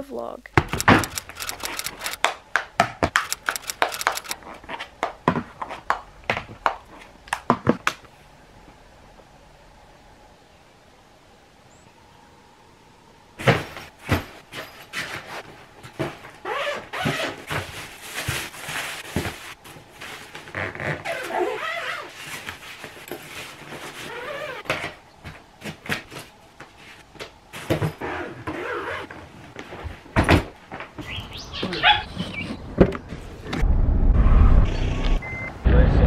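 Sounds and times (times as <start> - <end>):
plastic bags and clothes rustling: 13.4 - 31.0.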